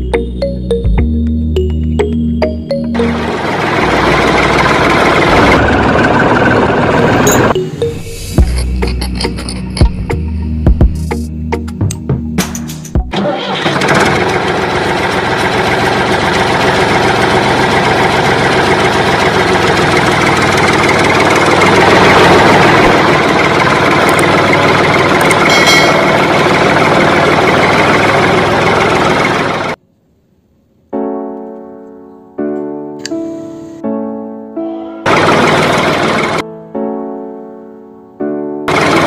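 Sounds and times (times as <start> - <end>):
background music: 0.0 - 5.8, 7.0 - 13.5, 31.0 - 39.0
piano notes: 0.0 - 9.9, 30.9 - 38.8
engine sound effect: 0.0 - 11.6, 13.0 - 29.8, 34.8 - 36.4, 38.7 - 39.0.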